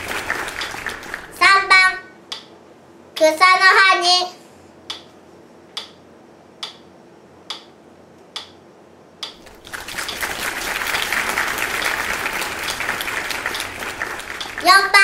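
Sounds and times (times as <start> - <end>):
applause: 0.0 - 1.4, 9.4 - 15.0.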